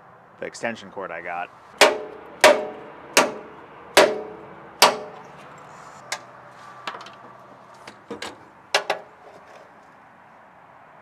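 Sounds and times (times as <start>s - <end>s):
metal strikes ringing: 1.8s - 5.3s.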